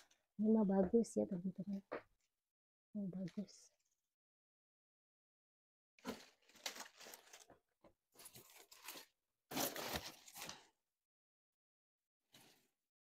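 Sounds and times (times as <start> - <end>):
lettuce rustling and tearing: 6.1 - 7.5, 8.2 - 10.6.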